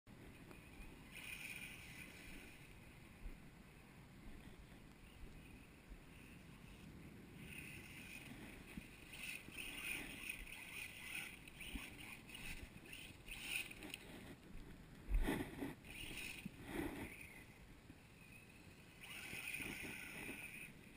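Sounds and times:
electric motor whining: 7.4s - 14.2s, 15.8s - 17.6s, 18.2s - 20.9s.

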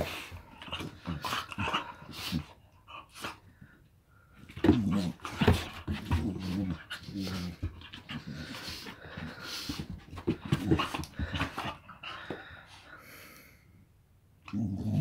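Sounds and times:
dogs growling: 14.5s - 15.0s.

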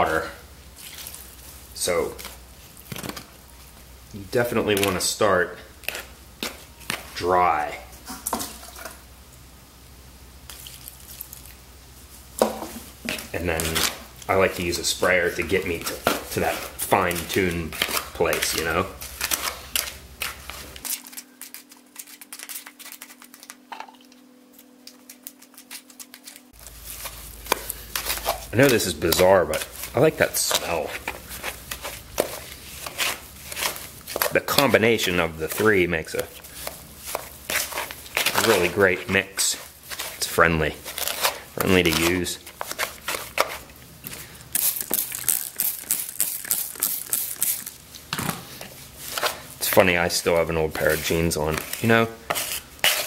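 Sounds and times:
trowel scraping concrete in can: 28.0s - 43.7s, 49.1s - 53.0s
trowel scraping in metal can: 50.4s - 53.0s.

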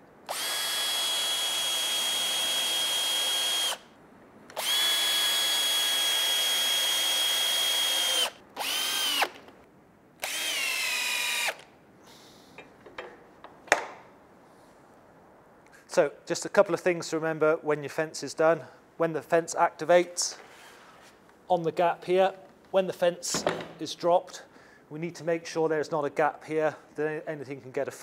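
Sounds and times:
power drill driving screws: 0.3s - 3.8s, 4.5s - 9.4s, 10.2s - 11.7s.

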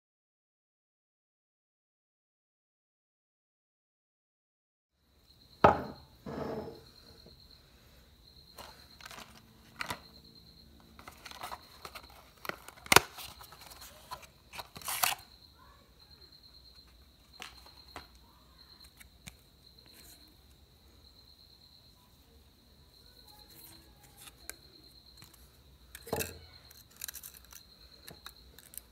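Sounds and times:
faint high whine: 5.0s - 28.9s
paper rustling: 11.0s - 15.2s.

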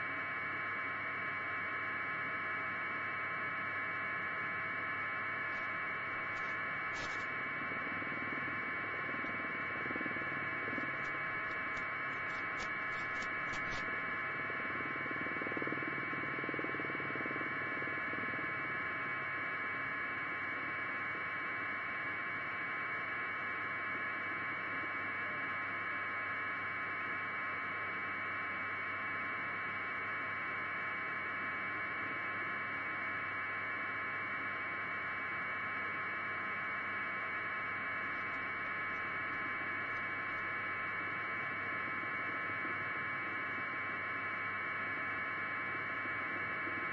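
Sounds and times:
faint hum: 0.0s - 46.9s
static hiss: 5.5s - 7.4s, 10.4s - 13.9s.

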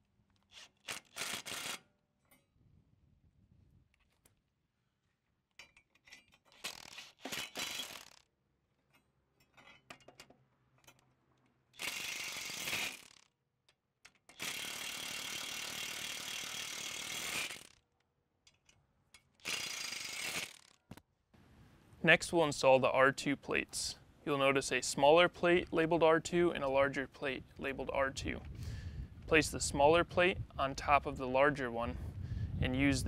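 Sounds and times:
metal parts clicking: 5.5s - 8.2s, 8.9s - 16.5s, 18.4s - 20.9s.

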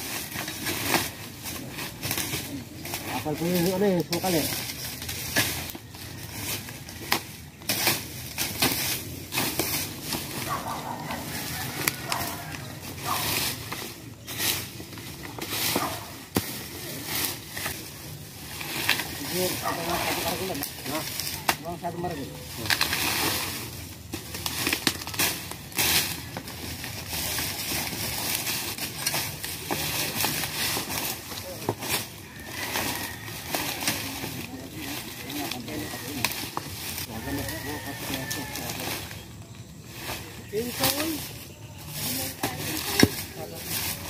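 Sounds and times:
dry leaves crackling and rustling: 0.0s - 44.0s
machete chopping undergrowth: 42.5s - 43.5s.

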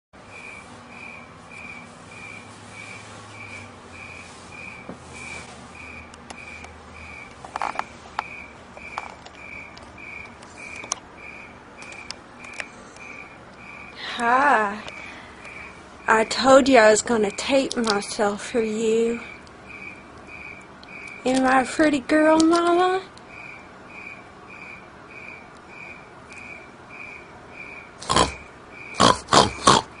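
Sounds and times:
sharp clicks and knocks: 6.1s - 11.1s, 11.8s - 12.7s.

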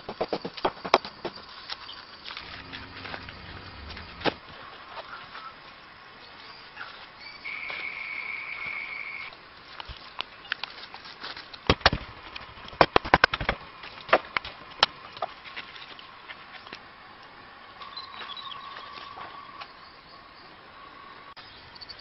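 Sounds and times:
high-pitched buzz: 2.4s - 4.5s.

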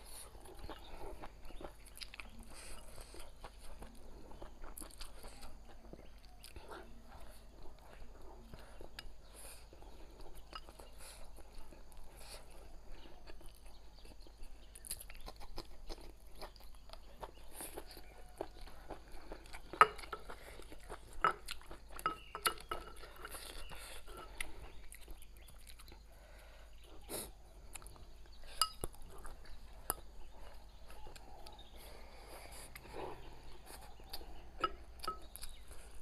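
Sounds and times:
chewing and crunching food: 0.0s - 36.0s.

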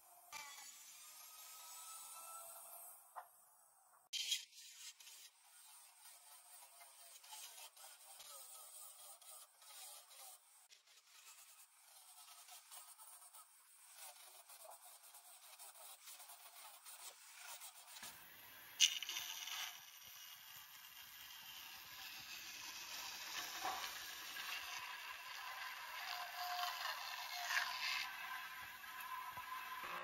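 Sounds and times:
band saw cutting wood: 0.3s - 3.1s.

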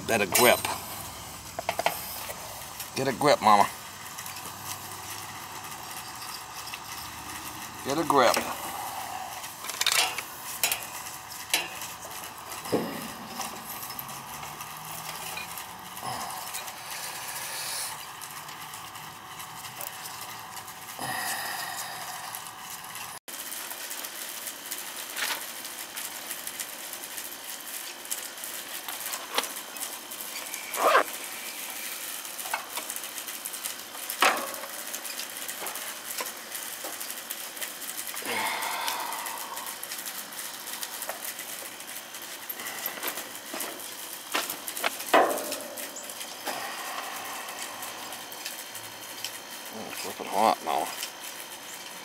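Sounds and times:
steady hiss: 0.0s - 52.0s.

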